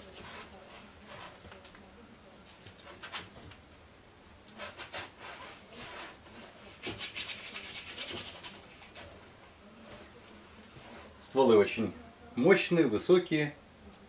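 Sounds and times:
paintbrush scrubbing canvas: 0.0s - 1.4s, 4.6s - 9.2s.

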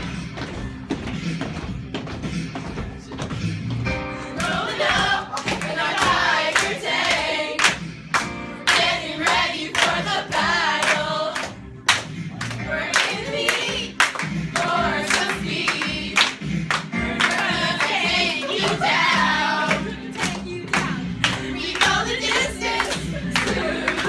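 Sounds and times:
group singing a jingle: 4.3s - 7.8s, 8.6s - 11.6s, 12.6s - 24.0s.

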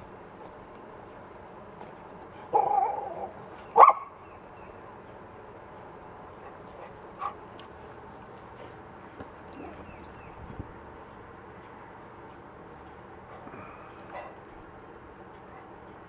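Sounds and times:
dog barking: 2.5s - 4.2s.

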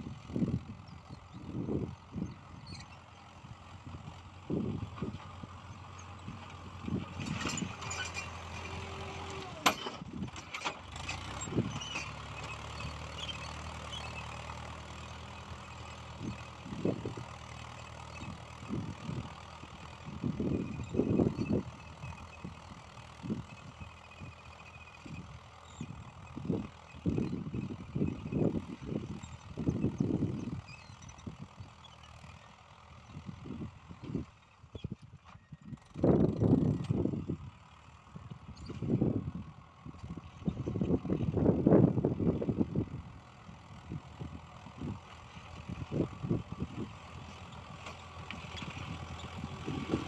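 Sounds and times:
wind rumbling on microphone: 0.0s - 8.4s, 20.0s - 23.8s, 25.0s - 31.8s, 33.1s - 37.5s, 38.1s - 50.0s
tractor diesel engine running: 0.0s - 50.0s.

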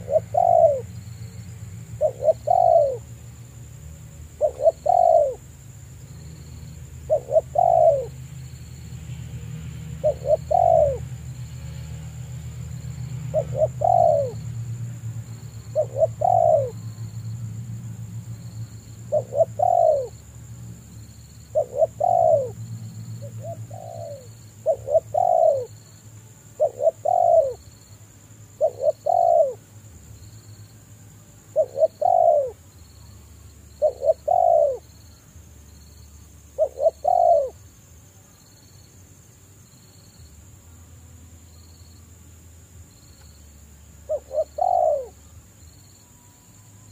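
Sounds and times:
dove cooing: 0.0s - 1.0s, 2.0s - 3.1s, 4.4s - 5.4s, 7.1s - 8.2s, 10.0s - 11.2s, 13.2s - 14.5s, 15.7s - 16.8s, 19.1s - 20.2s, 21.5s - 22.6s, 23.2s - 25.8s, 26.6s - 27.6s, 28.5s - 29.6s, 31.5s - 32.6s, 33.8s - 34.9s, 36.6s - 37.6s, 44.0s - 45.2s.

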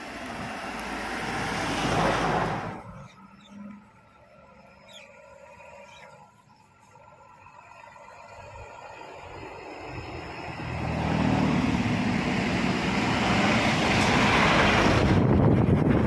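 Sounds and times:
vehicle passing close by: 0.0s - 3.8s, 8.6s - 16.0s.

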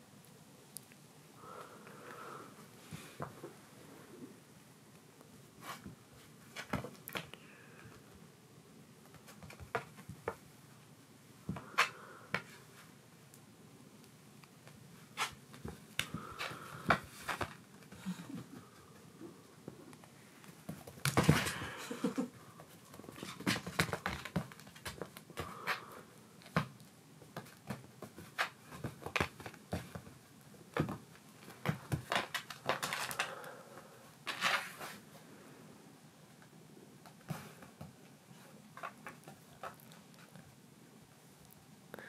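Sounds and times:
kittens tapping on mats: 9.0s - 10.4s, 22.6s - 25.8s, 26.4s - 33.3s
rustling scuffle: 22.7s - 25.9s.

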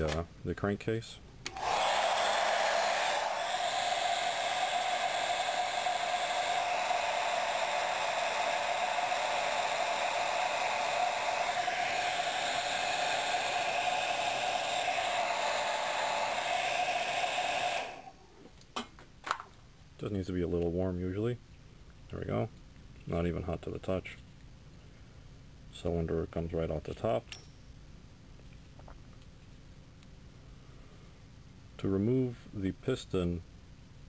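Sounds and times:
heat gun blowing: 1.5s - 18.2s.

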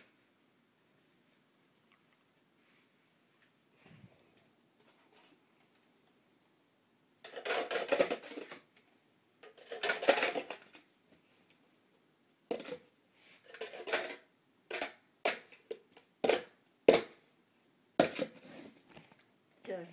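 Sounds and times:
plastic cups clattering: 7.2s - 8.8s, 9.4s - 10.9s, 12.5s - 17.2s, 18.0s - 18.5s.

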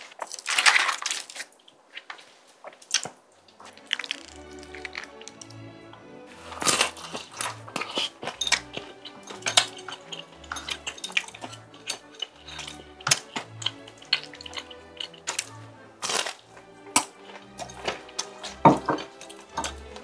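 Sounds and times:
chewing and biting food: 2.8s - 5.6s, 6.3s - 20.0s
light background music: 3.5s - 20.0s
chopsticks clicking against a bowl: 3.6s - 5.6s, 6.5s - 20.0s.

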